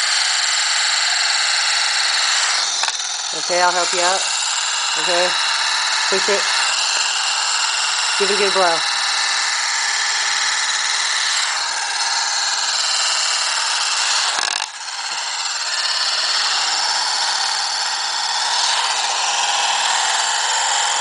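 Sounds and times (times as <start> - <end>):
high-pitched whirring whine: 0.0 - 21.0
click: 2.8 - 3.0.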